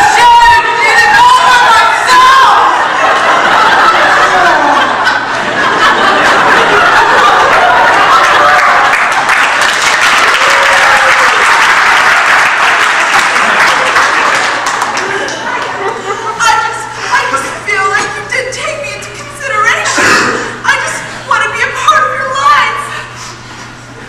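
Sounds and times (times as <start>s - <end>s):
voices: 0.0s - 8.0s
audience applauding: 5.9s - 16.0s.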